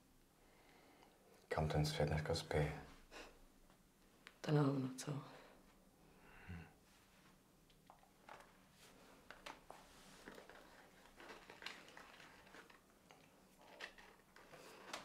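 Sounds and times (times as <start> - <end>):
small clicks and rustles of hands: 7.6 - 15.0.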